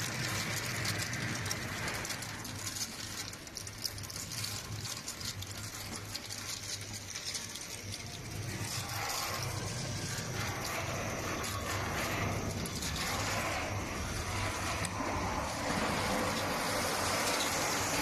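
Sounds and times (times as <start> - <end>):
low machine hum: 4.5 - 18.0.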